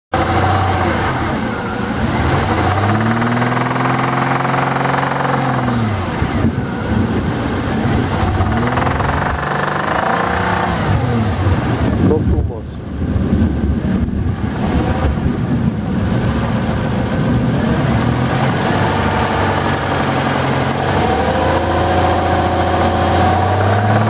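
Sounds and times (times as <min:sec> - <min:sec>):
car engine revving: 0:00.1 - 0:24.0.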